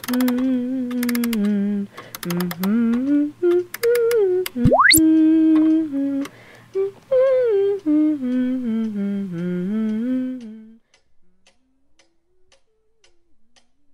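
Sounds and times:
person humming a tune: 0.0 - 10.8
faint ticking: 0.0 - 13.2.

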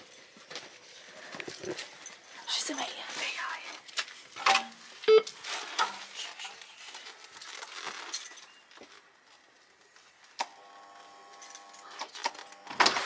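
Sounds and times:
light rustling and clinks: 0.0 - 3.0, 7.4 - 9.0
electric door buzzer: 10.4 - 13.0.

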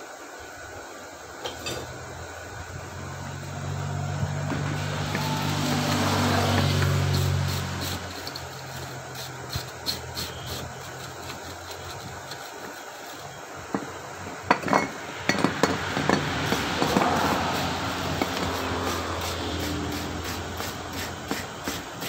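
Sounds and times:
steady low hum: 0.7 - 22.0
metal tool knocking on metal: 14.5 - 17.0.

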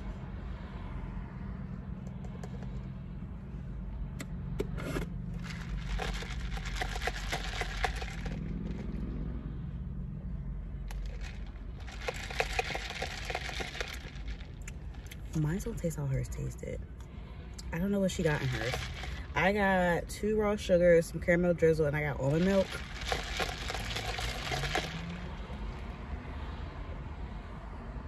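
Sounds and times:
ice cubes rattling in plastic cup: 5.4 - 8.9, 10.9 - 14.6, 18.1 - 19.6, 22.2 - 25.4.

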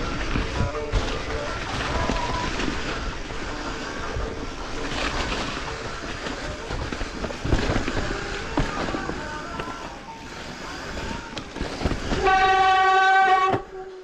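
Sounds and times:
bike rattling over rough trail: 0.0 - 13.8.

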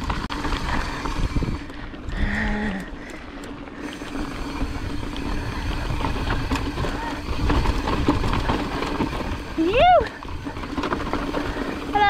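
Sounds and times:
wind on microphone: 0.0 - 2.8, 3.9 - 12.0
bike rattling: 0.0 - 12.0
tyres rumbling over rock: 4.0 - 12.0.

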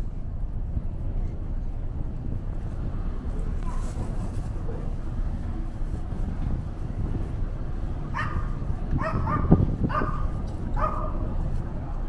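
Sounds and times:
wind and ship rumble: 0.0 - 12.0
dog barking in high yips: 8.1 - 11.2.

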